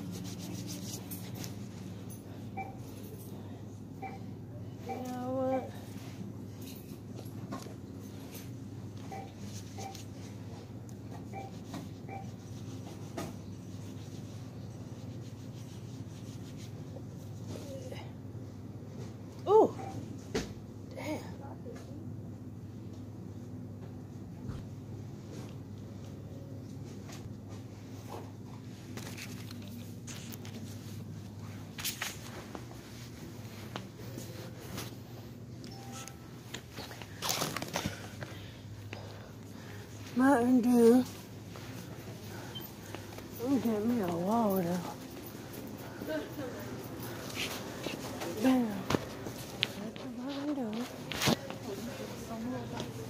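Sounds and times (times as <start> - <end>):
fabric rubbing on microphone: 0.0 - 1.6, 11.5 - 17.2
steady low hum: 0.0 - 53.0.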